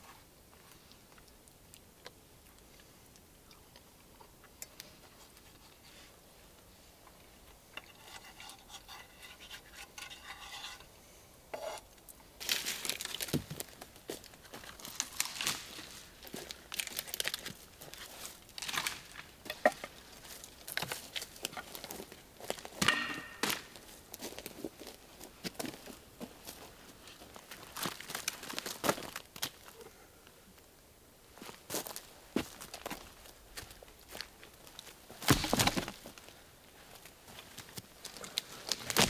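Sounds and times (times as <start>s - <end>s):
fork scraping metal frying pan: 7.8s - 10.9s
footsteps crunching dry twigs: 12.4s - 29.7s, 31.4s - 39.0s.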